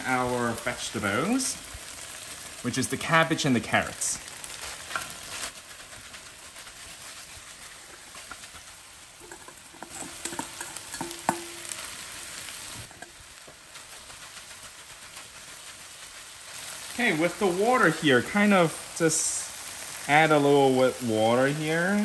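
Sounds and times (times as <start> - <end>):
vegetables sizzling in a wok: 0.0 - 22.0
metal bowl ringing: 9.2 - 11.8.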